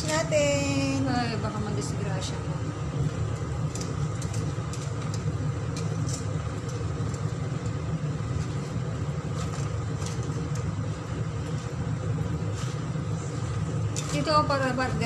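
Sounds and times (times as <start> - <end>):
gas stove low rumble: 0.0 - 15.0
water boiling in a pan: 0.0 - 15.0.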